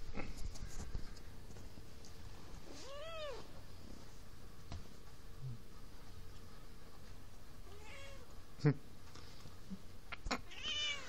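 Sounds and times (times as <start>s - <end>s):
cat meowing: 7.6s - 8.2s, 10.4s - 11.0s.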